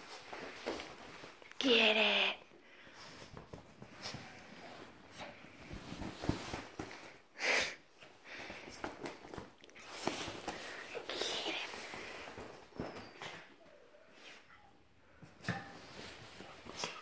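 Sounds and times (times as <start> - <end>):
fabric rustling: 3.0 - 7.2.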